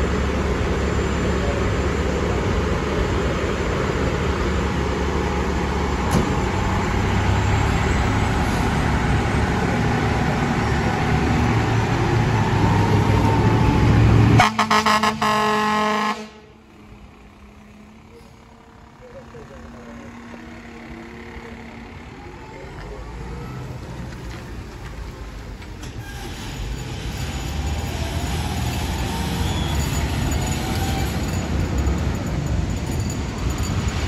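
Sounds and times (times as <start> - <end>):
fire truck engine running: 0.0 - 25.8
air horn short blasts: 14.4 - 16.4.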